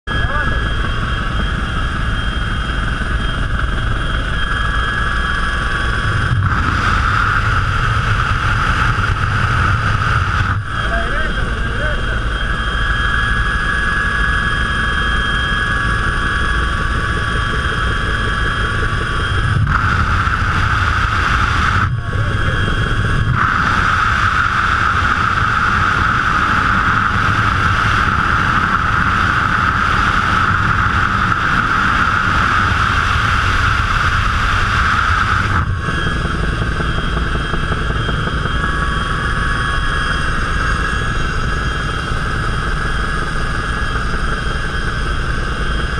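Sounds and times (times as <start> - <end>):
aircraft engine drone: 0.1 - 45.9
rushing air: 4.9 - 12.5, 19.3 - 36.6.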